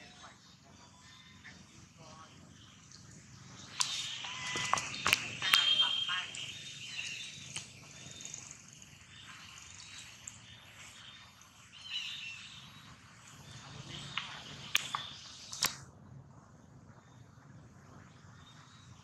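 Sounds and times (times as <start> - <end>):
sharp clicks: 3.6 - 7.8, 14.1 - 15.8.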